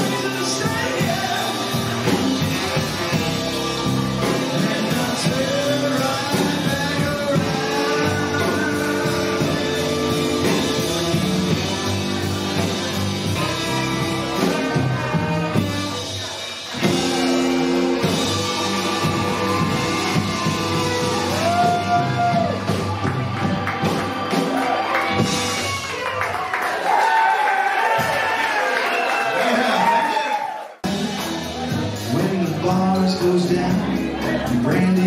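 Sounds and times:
person singing lead: 0.0s - 11.9s
keyboards: 0.0s - 26.1s
bass guitar: 0.0s - 26.2s, 30.8s - 35.0s
electric guitar: 0.0s - 26.2s
drum kit: 0.0s - 27.1s, 27.8s - 28.7s, 30.8s - 35.0s.

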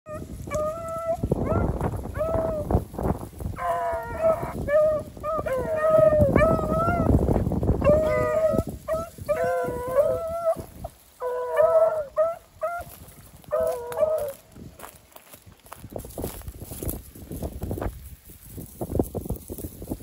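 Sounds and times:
hounds baying: 0.1s - 2.8s, 3.5s - 14.5s
wind rumble on microphone: 0.1s - 20.0s.

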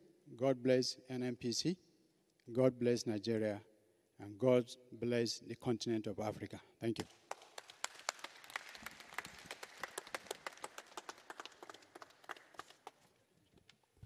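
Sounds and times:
audience applause: 7.3s - 13.1s.

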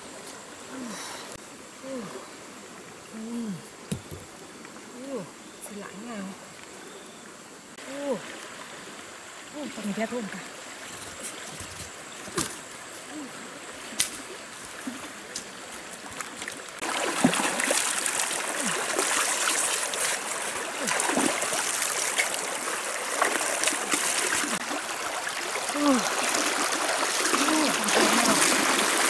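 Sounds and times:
river water rushing: 7.8s - 11.4s, 12.7s - 29.0s
hands splashing in water: 25.7s - 29.0s.

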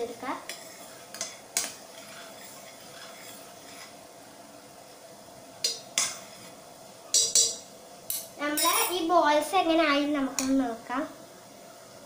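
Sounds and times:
steady faint hiss: 0.0s - 12.0s
metal spoon stirring in pot: 0.2s - 4.0s, 5.6s - 8.7s
spoon clinking against pot: 7.1s - 8.7s.

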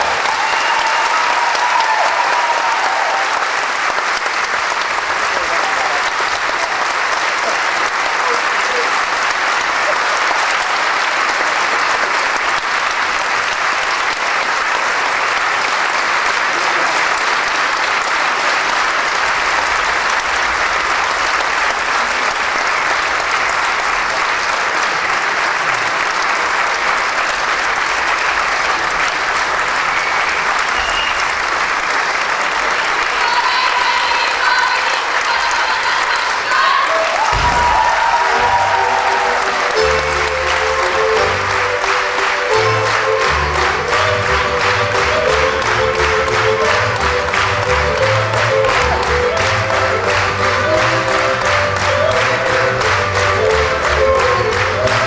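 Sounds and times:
audience applauding: 0.0s - 55.0s
folk music: 36.9s - 55.0s.

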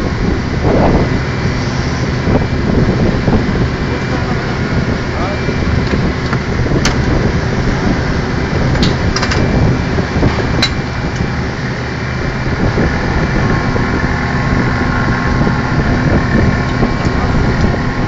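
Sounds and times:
rig machinery running: 0.0s - 18.0s.

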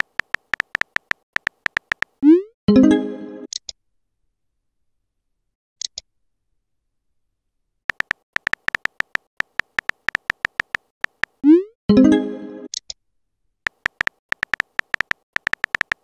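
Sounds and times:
phone keyboard typing taps: 0.0s - 2.2s, 7.9s - 11.4s, 13.7s - 16.0s.

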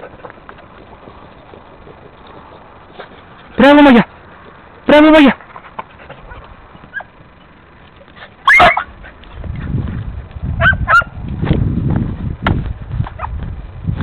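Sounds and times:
dogs baying: 5.6s - 9.4s, 10.6s - 11.2s
dog yelps: 6.2s - 7.2s, 8.4s - 9.0s, 10.6s - 11.1s.

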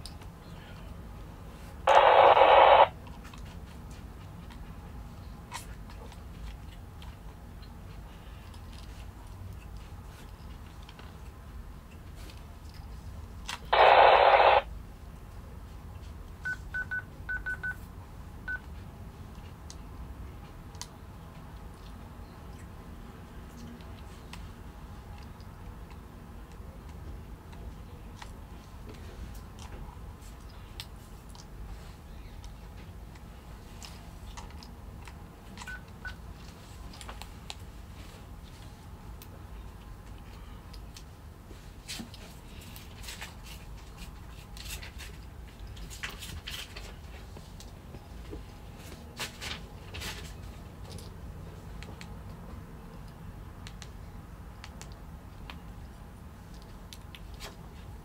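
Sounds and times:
radio static hiss: 1.9s - 3.0s, 13.7s - 14.7s
keypad beeps: 16.5s - 17.8s.

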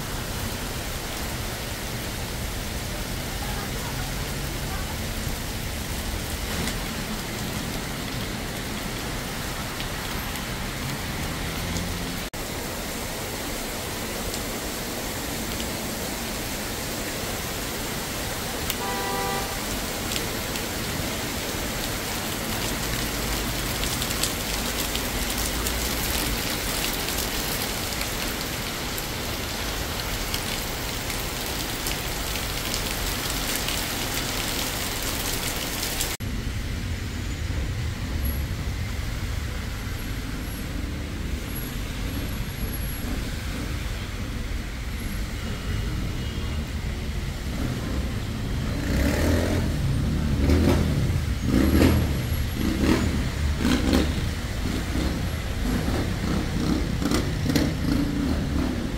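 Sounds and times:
rain: 0.0s - 58.9s
traffic on wet road: 0.0s - 58.9s
two-tone car horn beep: 18.8s - 19.7s.

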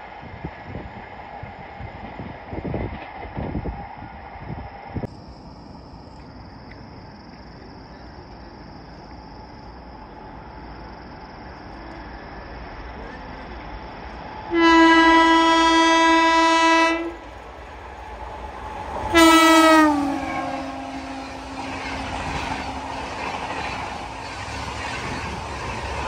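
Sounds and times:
locomotive rumble: 0.0s - 26.0s
train horn blast: 14.5s - 17.2s, 19.1s - 22.1s.

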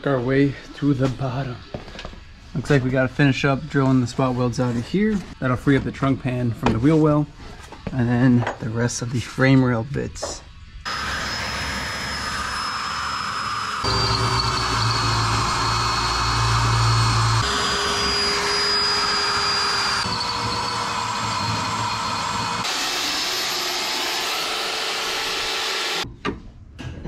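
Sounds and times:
electric drill motor whine: 10.9s - 26.0s.

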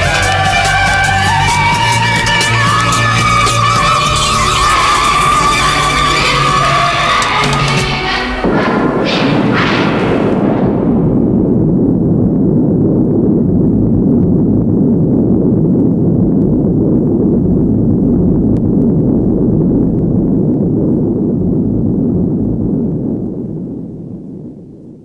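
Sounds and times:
jet ski engine rumble: 10.4s - 23.9s.

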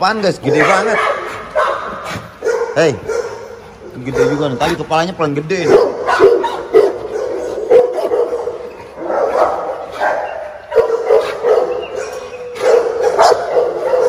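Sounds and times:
dogs barking: 0.1s - 14.0s.

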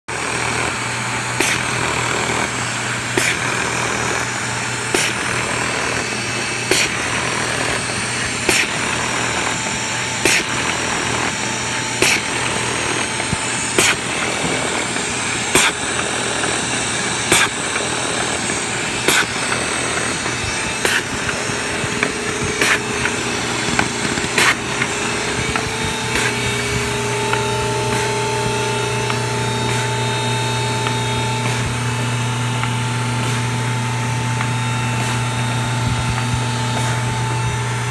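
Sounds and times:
high steady whine: 0.1s - 37.9s
machine hum and rushing belts: 0.1s - 37.9s
sharp machine click: 17.2s - 26.7s.

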